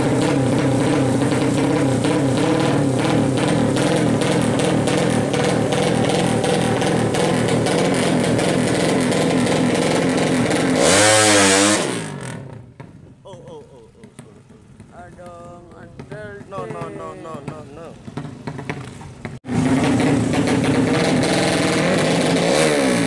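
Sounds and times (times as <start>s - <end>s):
motorcycle accelerating past: 0.0s - 12.7s, 18.0s - 23.0s
motorcycle engine revving: 0.0s - 13.0s, 14.0s - 23.0s.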